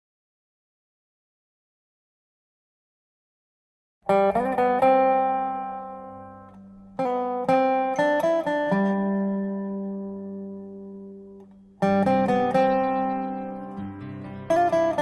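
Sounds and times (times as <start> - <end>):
acoustic guitar strumming chords: 4.1 - 15.0.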